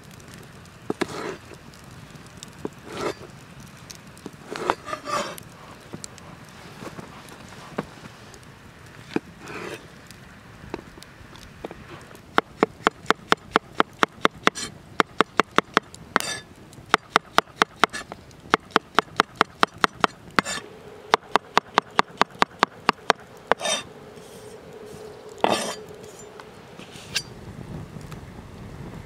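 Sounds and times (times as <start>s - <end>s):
knife scraping board: 1.0s - 1.4s, 2.9s - 3.2s, 4.5s - 5.4s, 9.4s - 9.8s, 20.4s - 20.6s, 23.5s - 24.6s, 25.4s - 26.2s, 26.8s - 27.3s.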